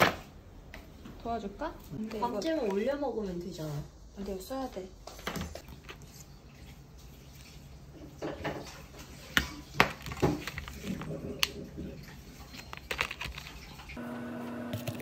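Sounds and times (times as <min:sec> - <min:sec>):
plastic packaging rustling: 0:05.3 - 0:07.8, 0:08.6 - 0:14.0.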